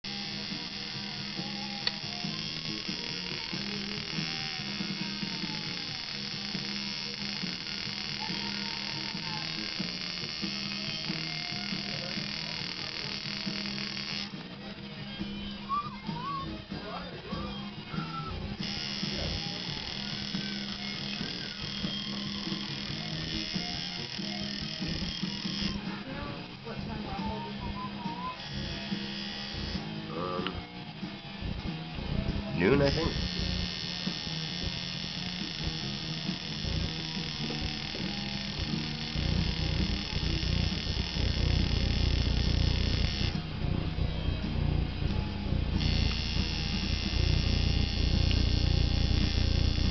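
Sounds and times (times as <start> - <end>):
tattoo machine buzzing: 0.0 - 14.4, 18.0 - 25.9, 27.2 - 30.5, 32.3 - 43.8, 44.6 - 49.9
background music: 0.1 - 49.9.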